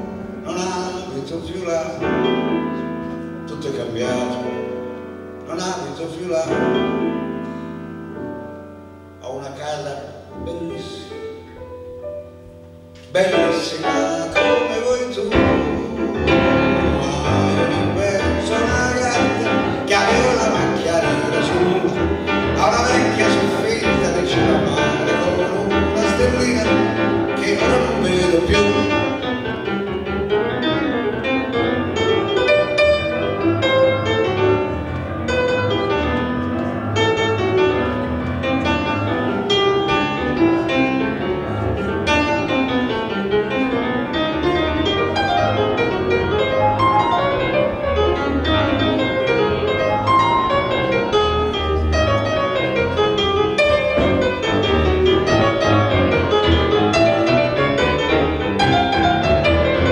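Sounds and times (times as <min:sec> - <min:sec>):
grand piano playing: 0:00.0 - 0:59.9.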